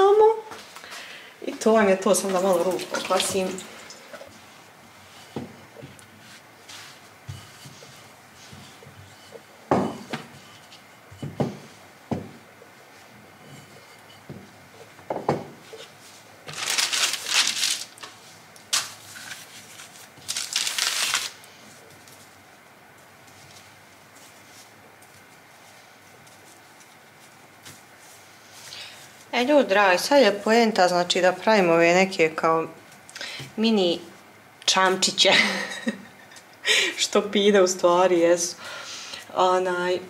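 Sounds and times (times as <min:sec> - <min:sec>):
rolling pin rolling dough: 0:04.1 - 0:16.6
baking paper crinkling: 0:15.8 - 0:22.3.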